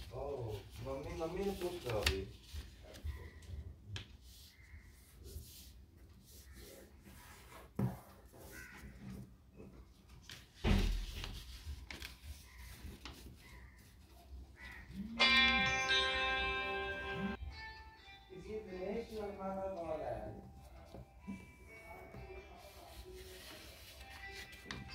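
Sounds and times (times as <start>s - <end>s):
paper rustling and crinkling: 0.0s - 14.8s, 20.6s - 24.9s.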